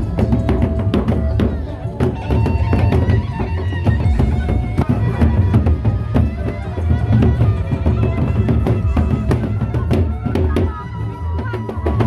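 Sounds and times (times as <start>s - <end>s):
large drums beaten fast: 0.0s - 12.0s.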